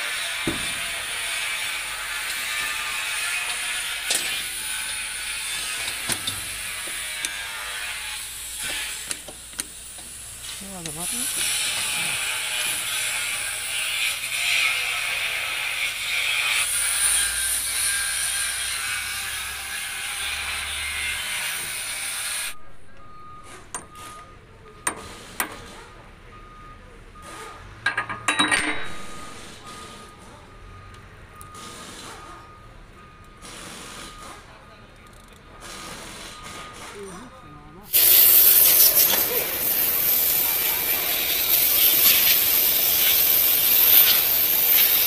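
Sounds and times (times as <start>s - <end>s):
steady hiss: 37.9s - 45.0s.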